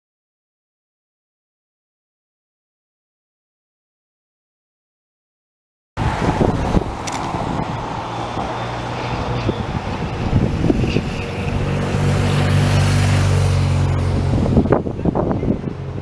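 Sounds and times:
vehicle engines humming: 0:06.0 - 0:16.0.

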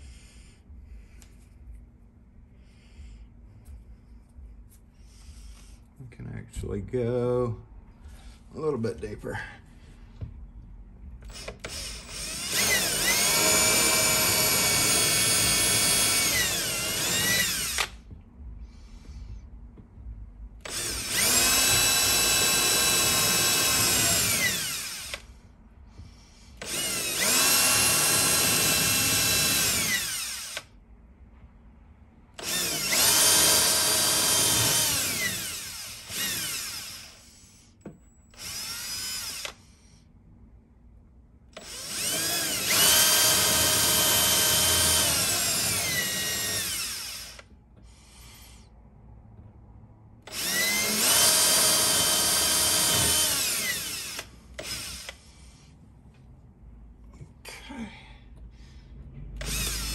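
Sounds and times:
power drill whining into wood: 0:11.2 - 0:18.0, 0:20.6 - 0:25.4, 0:26.6 - 0:30.7, 0:32.4 - 0:37.3, 0:38.3 - 0:39.7, 0:41.6 - 0:47.5, 0:50.3 - 0:55.3, 0:59.4 - 0:59.9.

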